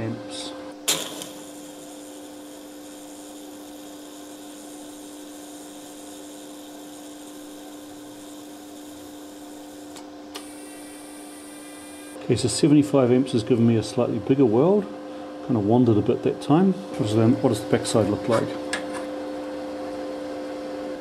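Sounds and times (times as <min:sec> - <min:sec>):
welding arc hissing and humming: 0:00.7 - 0:12.2.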